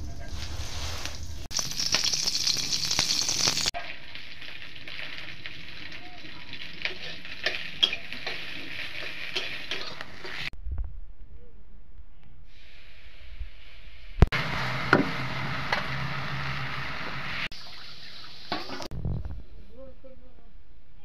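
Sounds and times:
food sizzling in wok: 0:00.1 - 0:10.6, 0:12.6 - 0:18.9.

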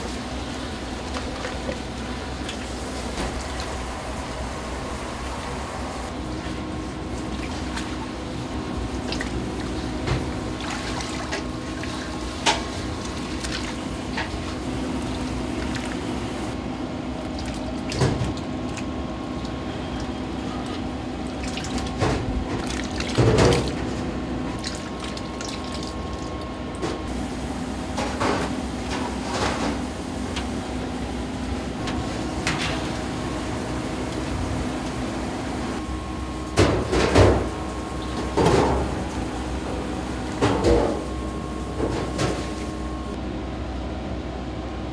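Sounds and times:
steady mechanical hum: 0:00.0 - 0:44.9
liquid pouring and splashing: 0:17.3 - 0:26.4.

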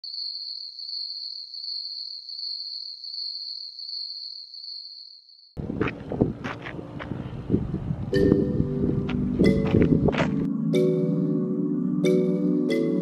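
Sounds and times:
high-pitched insect trill: 0:00.0 - 0:05.6
wind buffeting microphone: 0:05.6 - 0:10.5.

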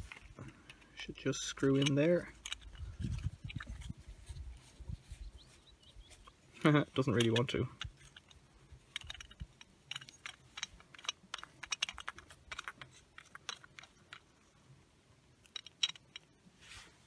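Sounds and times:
small metal clicks and taps: 0:00.1 - 0:03.9, 0:06.2 - 0:14.3, 0:15.4 - 0:16.4.

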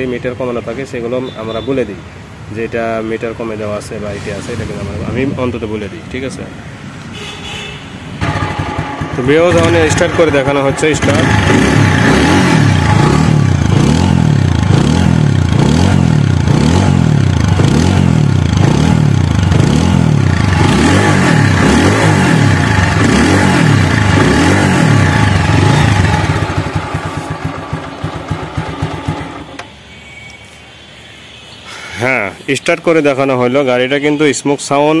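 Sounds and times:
motorcycle engine revving: 0:08.2 - 0:29.7.

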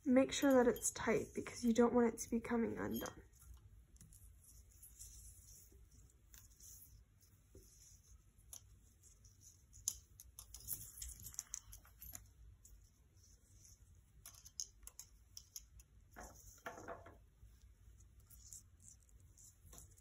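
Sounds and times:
hands wrapping twine around dowel: 0:02.6 - 0:20.0.

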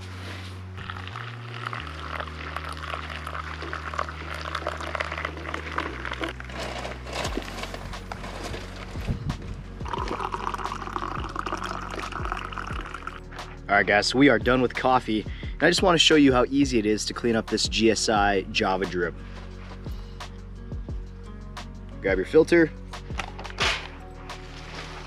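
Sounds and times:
background music with bass: 0:00.0 - 0:25.0
hot water trickling: 0:00.8 - 0:06.6, 0:09.8 - 0:13.2
coffee pouring into tumbler: 0:00.8 - 0:08.5, 0:09.8 - 0:13.2.

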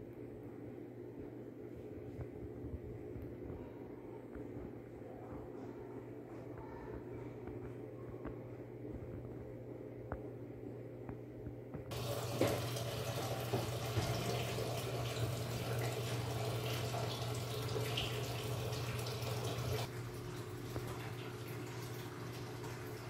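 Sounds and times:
low steady hum: 0:00.0 - 0:23.0
water running: 0:11.9 - 0:23.0.

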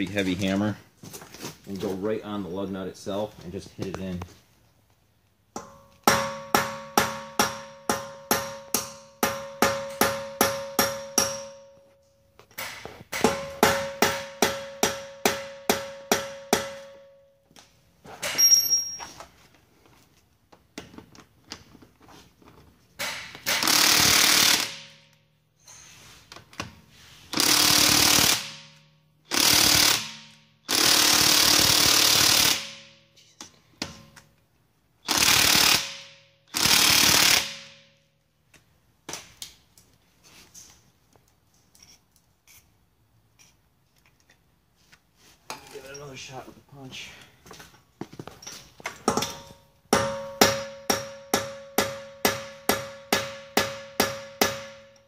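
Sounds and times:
impact wrench hammering: 0:05.6 - 0:11.8, 0:12.5 - 0:17.2, 0:23.0 - 0:25.2, 0:27.3 - 0:34.2, 0:35.1 - 0:38.0, 0:49.0 - 0:55.0.

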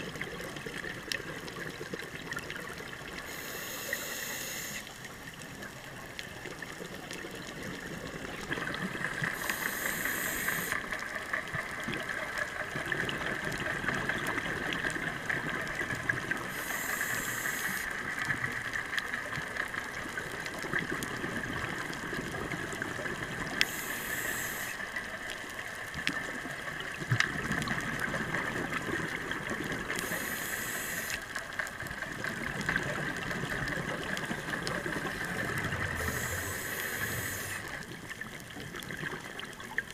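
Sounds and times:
exhaled air bubbling: 0:00.0 - 0:39.9
faint ticks: 0:00.0 - 0:39.9
steady hiss: 0:03.1 - 0:05.8, 0:08.3 - 0:11.0, 0:16.2 - 0:18.5, 0:23.4 - 0:25.2, 0:29.8 - 0:31.5, 0:34.4 - 0:38.0.

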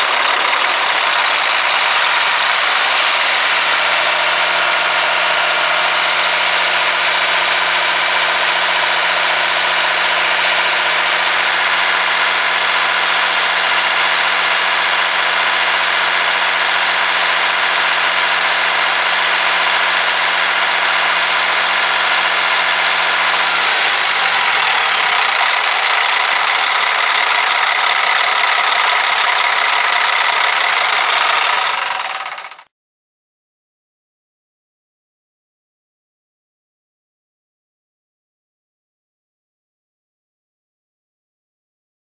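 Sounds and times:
diesel truck engine idling: 0:00.0 - 0:32.7.

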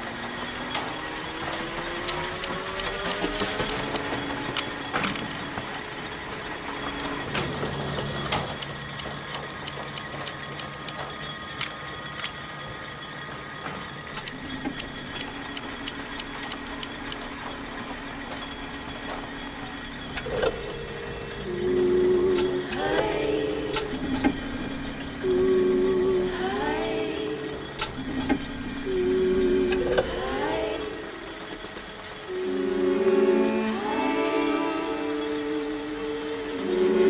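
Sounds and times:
plying machine humming and clattering: 0:00.0 - 0:37.0
rising machine whine: 0:00.0 - 0:37.0.

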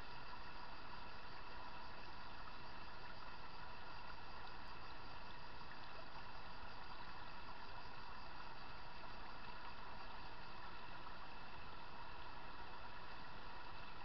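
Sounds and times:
stream running over stones: 0:00.0 - 0:14.0.

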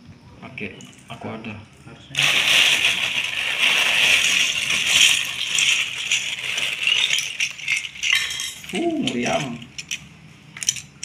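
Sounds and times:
plastic bricks clattering: 0:02.2 - 0:10.0.

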